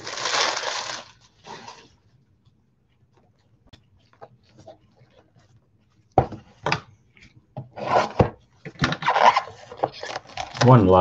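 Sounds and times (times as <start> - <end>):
wrapper and card rustling: 0.0 - 2.0, 9.0 - 11.0.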